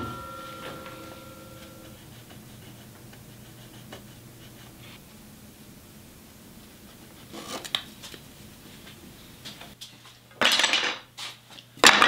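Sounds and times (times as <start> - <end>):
pencil scratching on wood: 1.8 - 5.0.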